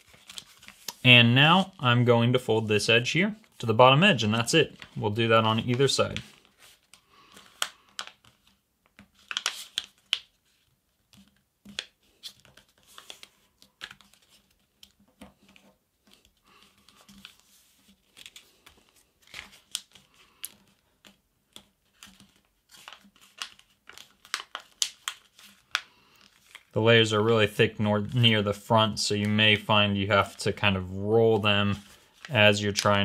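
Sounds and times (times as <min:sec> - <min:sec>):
paper rustling and crinkling: 0:00.0 - 0:01.8, 0:04.3 - 0:26.8, 0:29.2 - 0:33.0.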